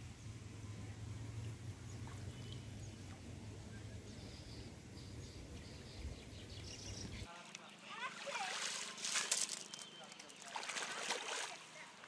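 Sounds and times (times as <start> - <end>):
net drawn through water: 8.0 - 11.8.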